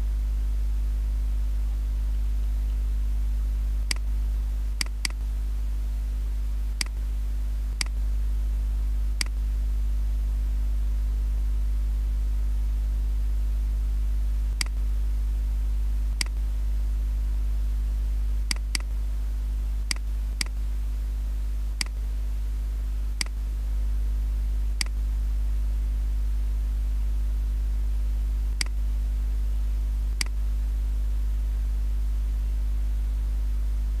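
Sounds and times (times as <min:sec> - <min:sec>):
low electrical hum: 0:00.0 - 0:34.0
computer mouse clicking: 0:18.5 - 0:18.9.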